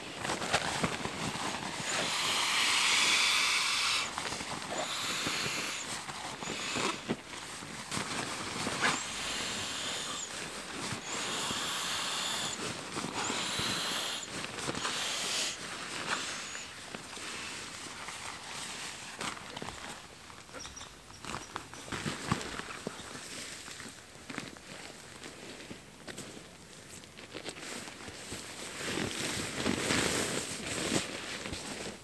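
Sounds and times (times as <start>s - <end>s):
rustles and clicks on forest floor: 0.0s - 32.0s
air hissing into valve: 1.7s - 7.2s, 8.7s - 16.8s.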